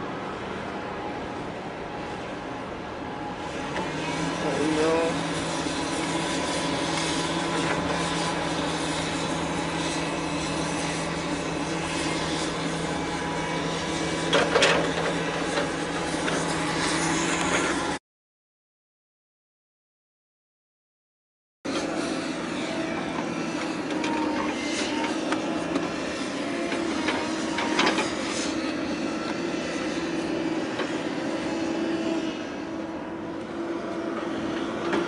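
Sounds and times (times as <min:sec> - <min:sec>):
engine humming: 0:00.0 - 0:18.0
harbour noise: 0:00.0 - 0:18.0, 0:21.7 - 0:35.0.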